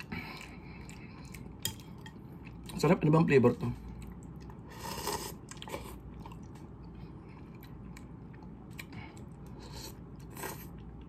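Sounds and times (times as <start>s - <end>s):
soft chewing with mouth clicks: 0.0s - 2.8s, 3.8s - 11.0s
person slurping noodles: 4.7s - 6.0s.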